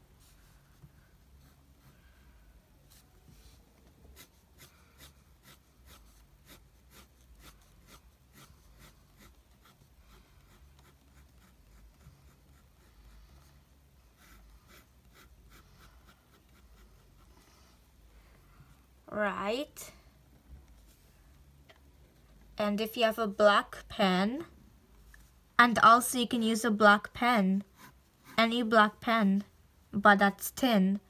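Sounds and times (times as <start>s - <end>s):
pencil scratching on paper: 1.2s - 2.0s, 2.9s - 17.5s, 27.6s - 28.6s.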